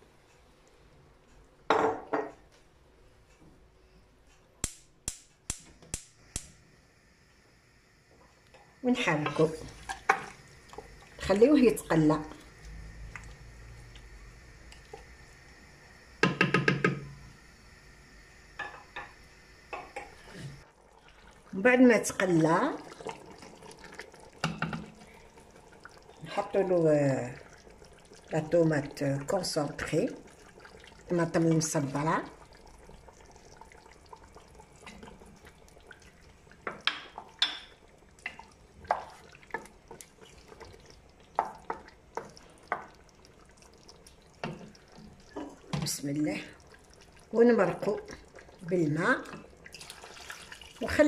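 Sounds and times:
wooden spoon knocking metal pot: 16.2 - 17.1, 36.6 - 39.7.

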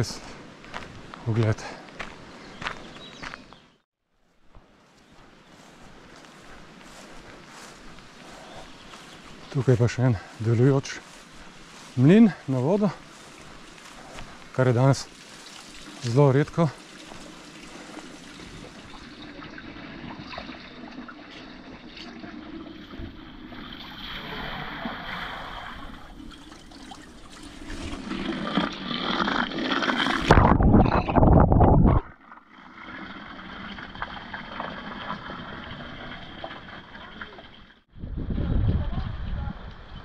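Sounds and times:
water rushing at water mill: 11.9 - 23.6.

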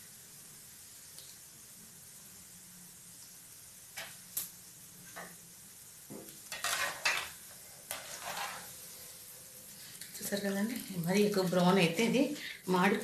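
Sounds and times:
hot oil sizzling: 0.0 - 13.0
metal spoon scraping frying pan: 6.5 - 8.8.

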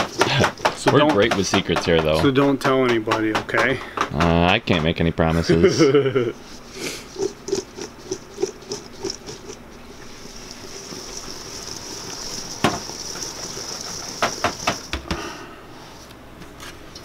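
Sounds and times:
cherries rolling in metal bowl: 0.0 - 3.3, 7.1 - 15.1
sharp knocks: 0.0 - 5.0.

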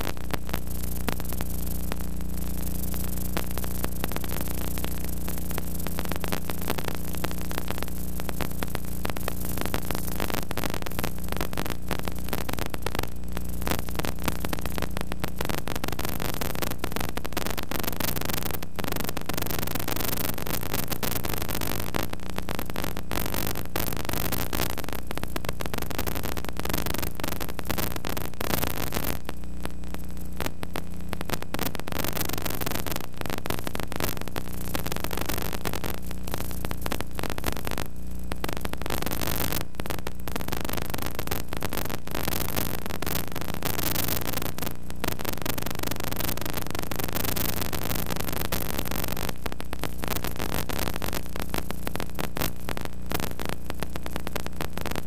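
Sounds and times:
electrical hum: 0.0 - 55.0
hiss and crackling static: 0.0 - 55.0.

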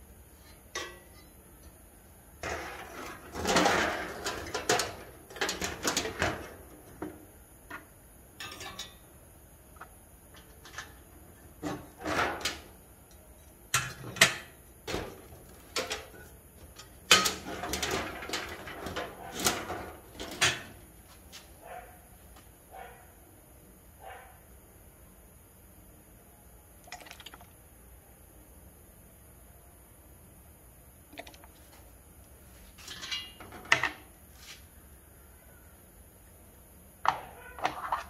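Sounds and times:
metal stove clanking: 0.7 - 1.8, 2.4 - 7.8, 8.4 - 9.1, 10.4 - 12.8, 13.7 - 20.8, 32.9 - 34.1.

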